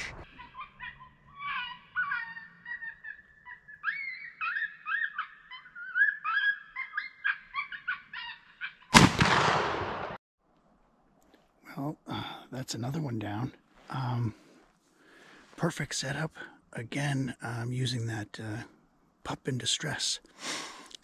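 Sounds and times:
shotgun shot: 9.0 - 10.2.

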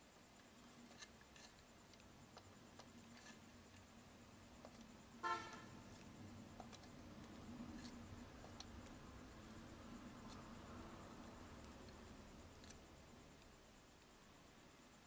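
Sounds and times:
short horn toot: 5.2 - 5.7.

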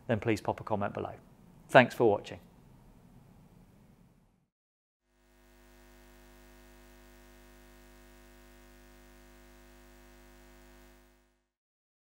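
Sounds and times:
hum of held tones: 5.1 - 11.5.

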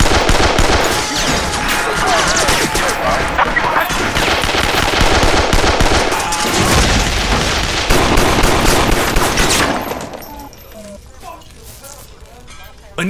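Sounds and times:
automatic gunfire: 0.0 - 10.2.

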